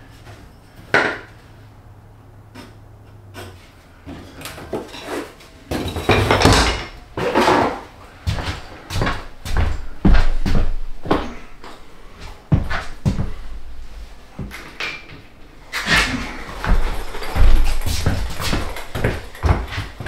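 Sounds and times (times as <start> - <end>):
footsteps: 7.2 - 20.0.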